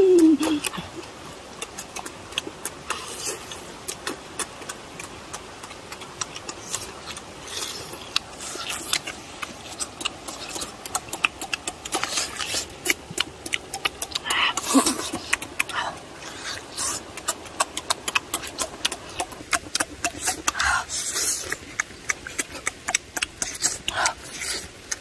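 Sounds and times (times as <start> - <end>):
faint background hiss: 0.0 - 25.0
person chewing meat: 0.0 - 25.0.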